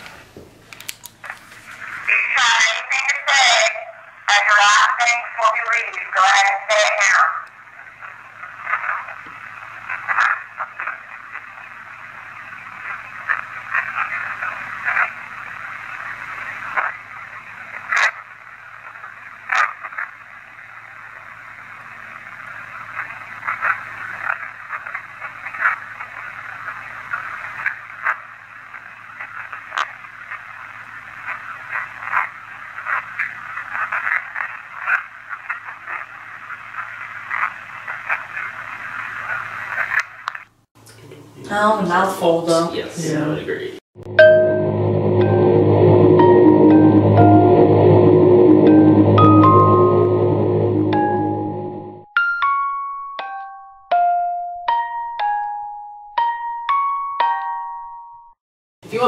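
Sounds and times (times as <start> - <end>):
radio static crackle: 1.2 - 40.5.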